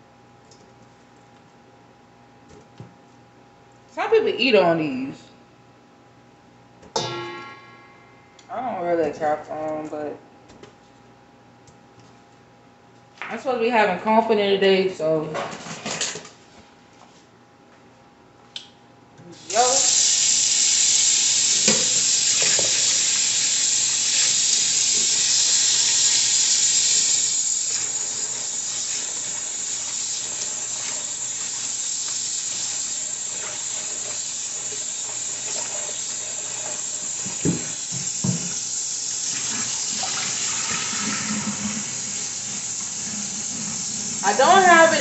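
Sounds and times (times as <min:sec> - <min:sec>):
tap water splashing into sink: 0:37.2 - 0:38.6.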